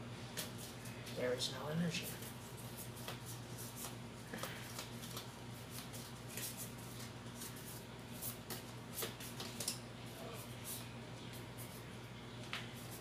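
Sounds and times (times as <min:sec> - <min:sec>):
low steady hum: 0:00.0 - 0:13.0
trading cards flicked by hand: 0:08.2 - 0:09.8.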